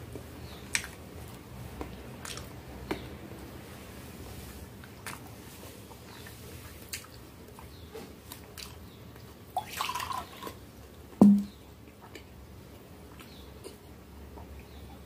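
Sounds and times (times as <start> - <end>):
loud knock on table: 11.2 - 11.5.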